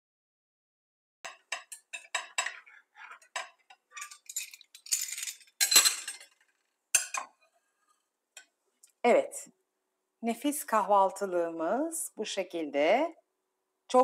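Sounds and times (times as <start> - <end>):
metal utensils clicking on a pan: 1.3 - 7.4.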